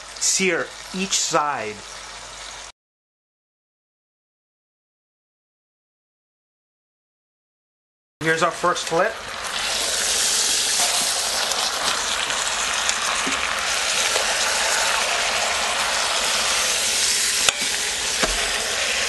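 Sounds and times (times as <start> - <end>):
meat sizzling in hot oil: 0.0 - 2.7, 8.7 - 19.0.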